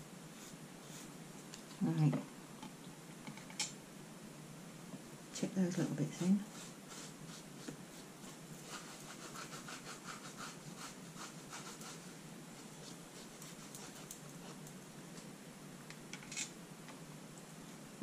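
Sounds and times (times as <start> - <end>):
brush scratching flakes off card: 0.3 - 1.1, 6.2 - 14.8.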